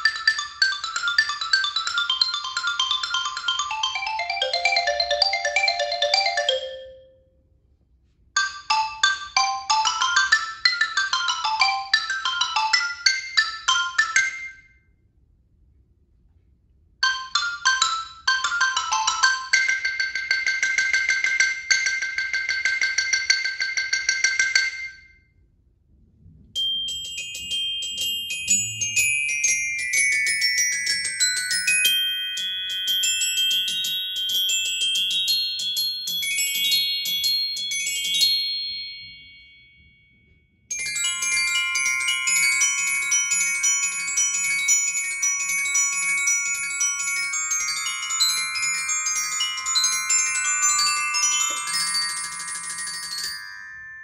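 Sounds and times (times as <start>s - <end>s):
xylophone played with mallets: 0.0s - 7.3s, 8.4s - 14.6s, 17.0s - 25.0s, 26.6s - 39.8s, 40.7s - 54.0s
glockenspiel fast runs: 26.6s - 54.0s.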